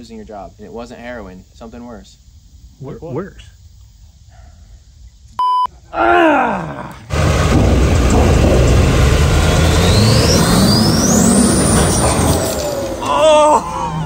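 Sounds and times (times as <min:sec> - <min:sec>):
censor bleep: 0:05.4 - 0:05.7
falling groan-like voice: 0:05.9 - 0:07.2, 0:13.0 - 0:14.0
truck engines under load: 0:07.0 - 0:14.0.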